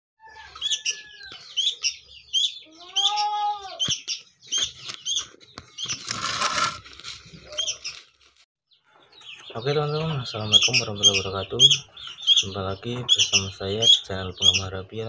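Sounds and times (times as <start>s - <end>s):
rising and falling bird call: 0.2s - 6.7s
birds chirping sharply: 0.5s - 8.1s, 8.7s - 15.0s.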